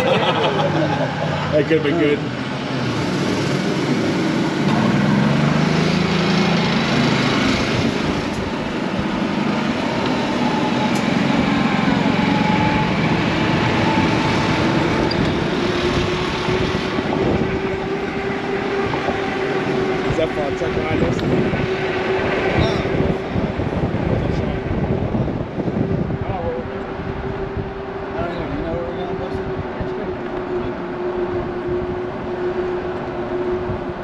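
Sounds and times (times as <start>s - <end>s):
golf cart motor running: 0.0s - 24.9s.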